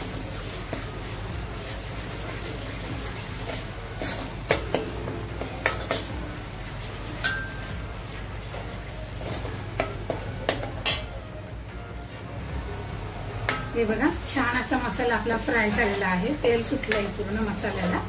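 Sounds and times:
paste frying in oil: 0.0 - 11.2, 12.4 - 18.0
metal spoon scraping a pan: 2.2 - 6.2, 8.5 - 11.2, 15.3 - 18.0.

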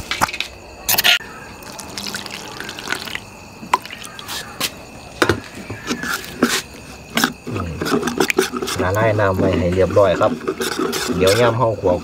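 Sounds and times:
water splashing in a bowl: 1.6 - 4.6.

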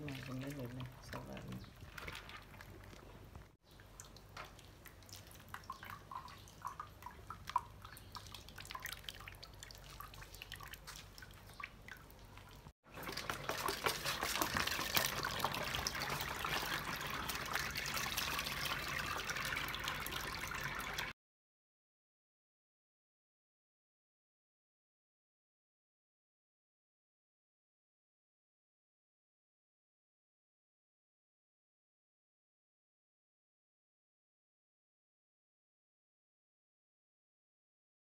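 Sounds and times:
juice pouring into bucket: 0.0 - 11.5, 12.9 - 21.1
hands squelching fruit pulp: 0.0 - 20.2
drips and splashes: 0.0 - 21.1.

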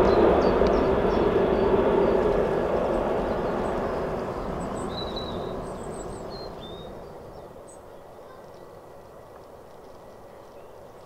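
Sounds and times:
jet airliner engine noise: 0.0 - 7.7
small birds chirping: 0.0 - 9.0, 9.8 - 11.0.

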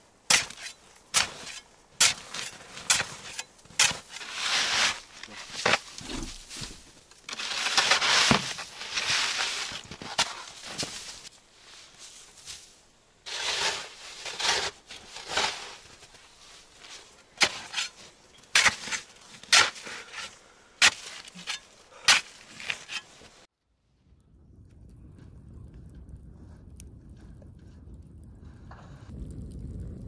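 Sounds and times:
snow shovel scraping snow: 0.3 - 23.5.

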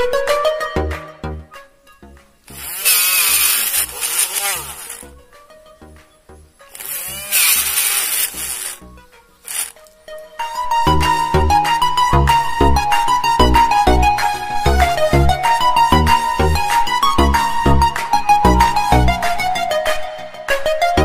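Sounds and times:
small motor drill whining: 2.5 - 5.1, 6.7 - 9.8.

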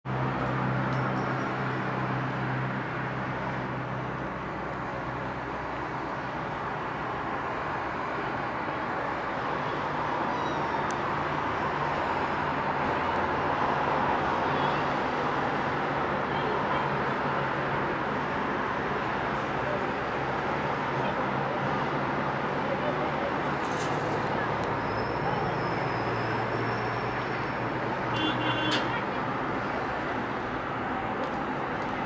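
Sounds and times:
distant city traffic: 0.0 - 32.0.

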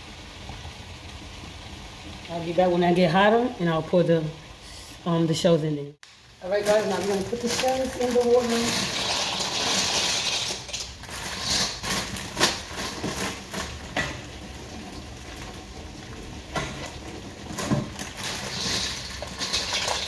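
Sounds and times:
plastic bag rustling: 6.4 - 20.0.

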